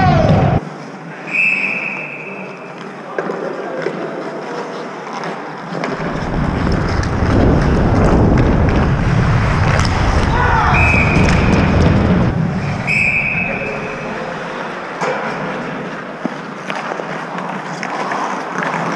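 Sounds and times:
ice rink noise: 0.0 - 18.9
referee's whistle blast: 1.3 - 2.6, 10.7 - 11.5, 12.8 - 14.2
wind rumble on microphone: 6.0 - 12.9.

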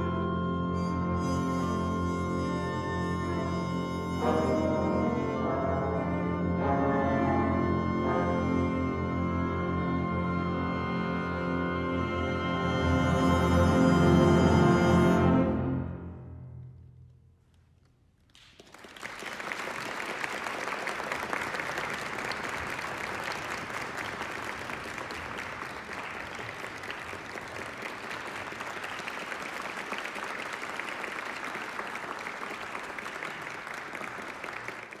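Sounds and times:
wind ensemble chord: 0.0 - 16.6
audience applause: 18.3 - 35.0.

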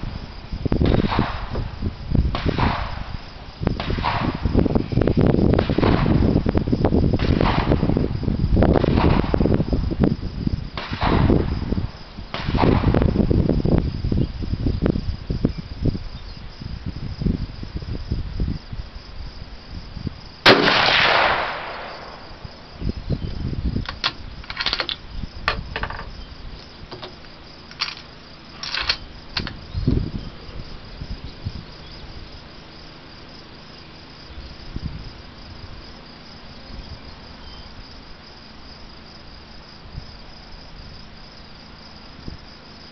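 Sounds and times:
low rumbling thumps: 0.0 - 18.6
insects chirping: 0.0 - 42.9
rifle shot: 0.8 - 1.6, 2.3 - 3.1, 3.8 - 4.5, 5.6 - 6.3, 7.2 - 8.0, 8.7 - 9.5, 10.8 - 11.6, 12.3 - 13.1, 20.4 - 22.5.

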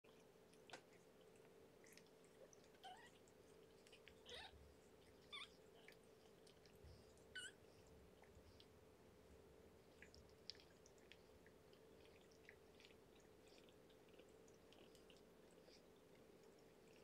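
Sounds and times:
kittens licking and suckling: 0.0 - 17.0
kittens squeaking: 4.2 - 4.6, 5.2 - 5.6, 7.3 - 7.6.

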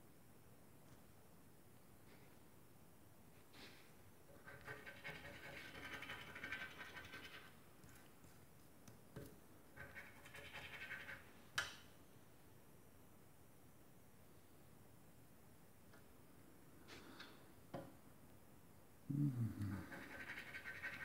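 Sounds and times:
scratch card being scraped: 4.4 - 7.5, 9.8 - 11.2, 19.9 - 21.0.

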